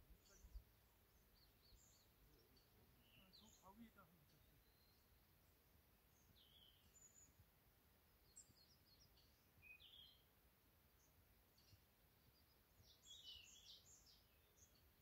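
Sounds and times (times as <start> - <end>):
faint high bird chirps: 0.0 - 7.4, 8.2 - 10.3, 10.9 - 15.0.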